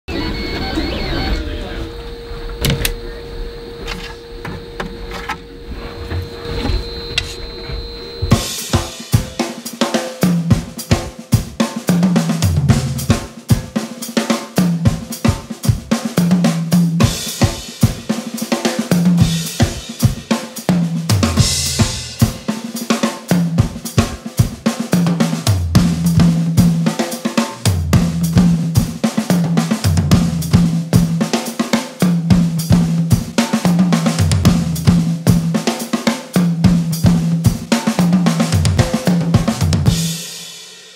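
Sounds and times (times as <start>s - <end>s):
steady hum: 0.1s - 9.5s
drum kit playing a beat: 1.9s - 40.9s.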